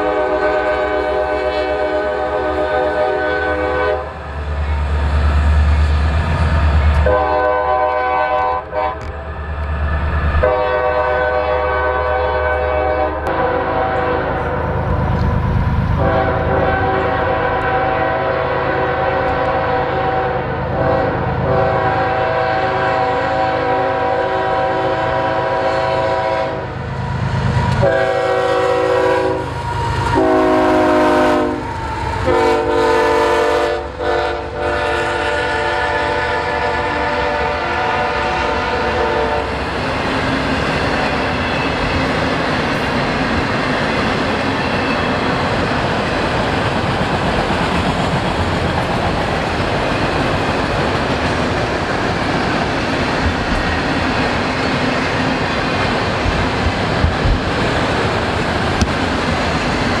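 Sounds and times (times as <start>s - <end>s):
locomotive air horn blasts: 0.0s - 4.2s, 7.0s - 9.1s, 10.4s - 14.7s, 16.0s - 26.8s, 27.7s - 39.6s
locomotive rumbling past: 0.0s - 60.0s.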